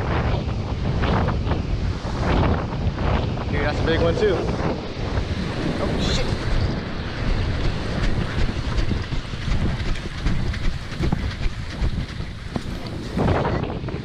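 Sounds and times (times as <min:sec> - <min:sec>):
surf on beach: 0:00.0 - 0:14.0
wind buffeting microphone: 0:00.0 - 0:14.0.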